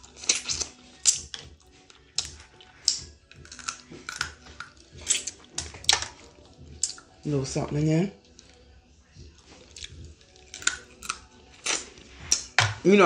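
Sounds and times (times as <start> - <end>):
eating crab with lip smacks: 0.0 - 7.2, 9.4 - 12.6.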